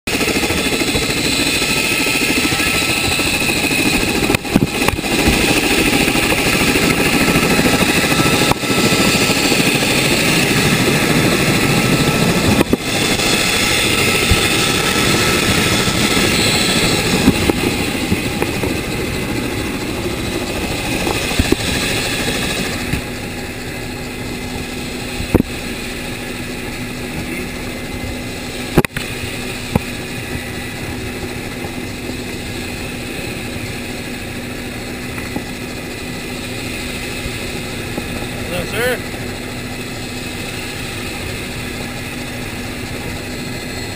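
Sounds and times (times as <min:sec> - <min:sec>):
helicopter rotors and engines: 0:00.1 - 0:43.9.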